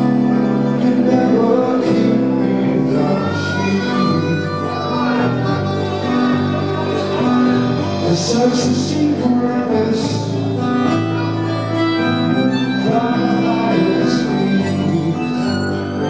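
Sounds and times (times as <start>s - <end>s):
electric bass: 0.0s - 16.0s
harmonica melody: 0.0s - 16.0s
strummed acoustic guitar: 0.0s - 16.0s.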